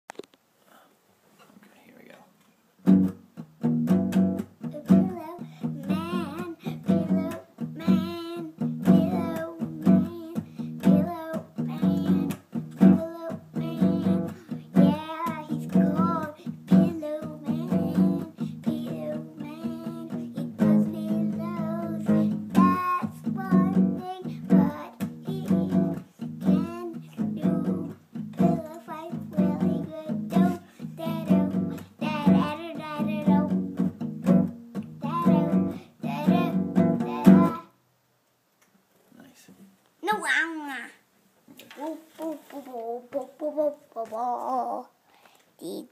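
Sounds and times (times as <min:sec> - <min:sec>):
acoustic guitar strumming: 0:02.8 - 0:37.7
person singing: 0:04.6 - 0:33.7, 0:35.0 - 0:37.8, 0:41.7 - 0:45.0.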